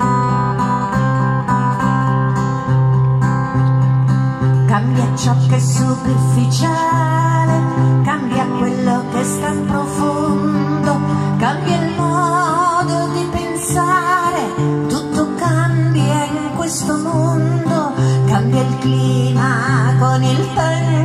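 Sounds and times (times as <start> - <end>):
acoustic guitars strumming chords: 0.0 - 21.0
woman singing with vibrato: 4.7 - 21.0.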